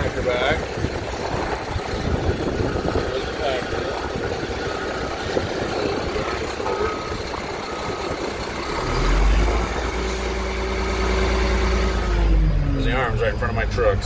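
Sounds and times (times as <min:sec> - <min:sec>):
deep steady hum: 0:00.0 - 0:14.0
diesel engine running: 0:00.0 - 0:14.0
backup alarm beeping: 0:04.5 - 0:08.5.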